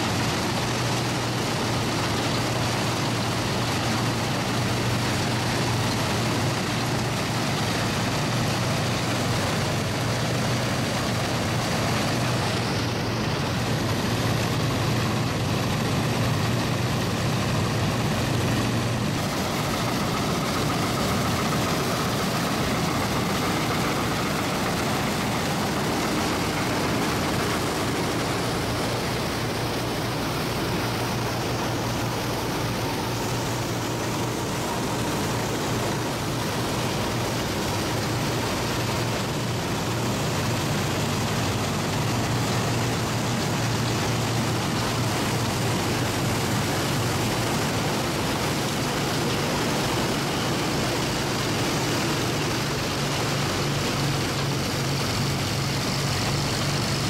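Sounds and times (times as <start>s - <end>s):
combine harvester machinery running: 0.0s - 57.0s.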